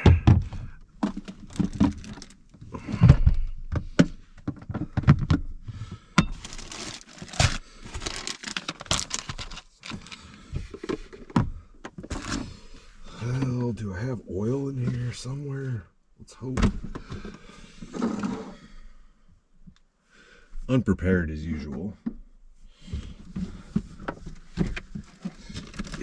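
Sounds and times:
plastic bag crinkling: 0:01.2 - 0:02.4, 0:06.3 - 0:10.2.

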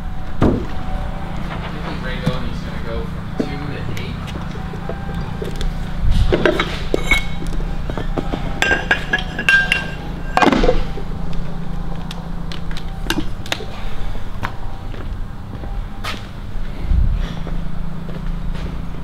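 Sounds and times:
steady low hum: 0:00.0 - 0:19.0
metallic clinks and knocks: 0:06.3 - 0:11.0, 0:12.8 - 0:13.7.

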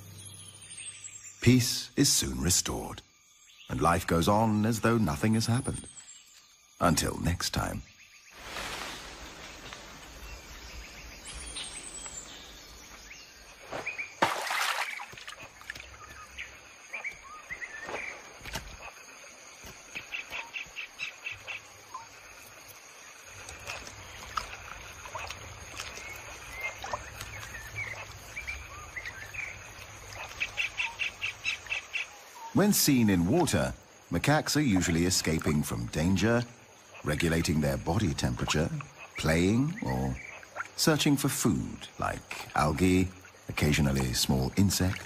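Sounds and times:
birds chirping and calling: 0:03.4 - 0:19.0, 0:23.6 - 0:41.2.

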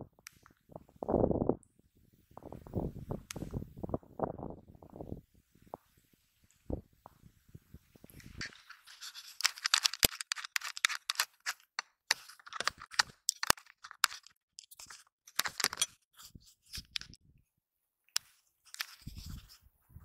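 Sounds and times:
microphone handling scraping: 0:19.0 - 0:20.0.

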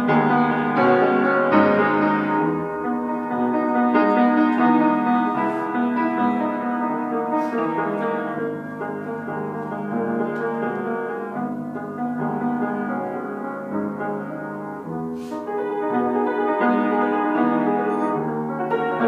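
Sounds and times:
piano: 0:00.0 - 0:19.0.

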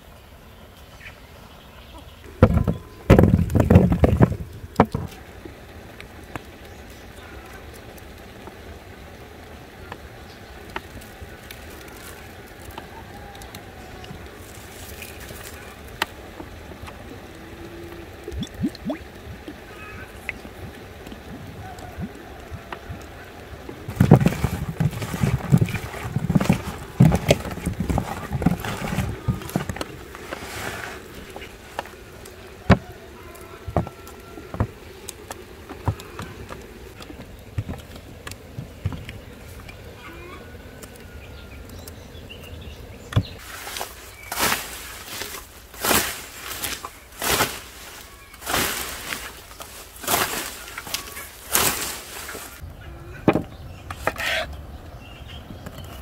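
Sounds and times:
knocks and rustles of handling: 0:02.3 - 0:05.2, 0:23.8 - 0:32.0, 0:43.2 - 0:52.6
scythe swishing through grass: 0:43.4 - 0:52.6.

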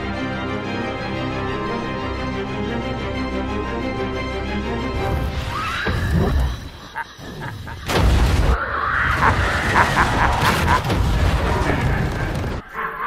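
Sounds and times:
fire and debris crackling: 0:05.2 - 0:12.6
explosion blasts with deep rumble: 0:07.8 - 0:12.6.

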